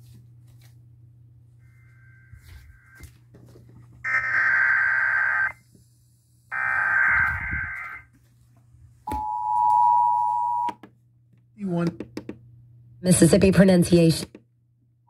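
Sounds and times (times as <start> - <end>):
harsh buzzing data bursts: 4.1 - 5.6, 6.5 - 8.1.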